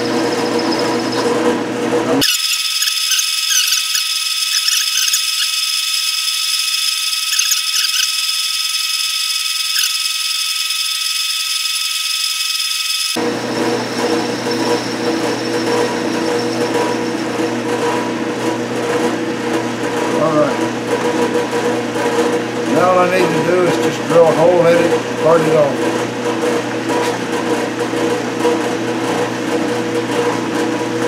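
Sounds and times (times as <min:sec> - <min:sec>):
lathe cutting tool whine: 0:00.0 - 0:18.8
lathe running hum: 0:00.0 - 0:31.0.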